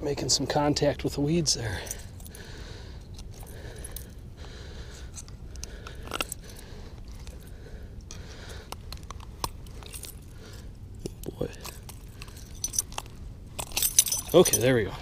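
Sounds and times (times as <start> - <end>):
low steady rumble: 0.0 - 15.0.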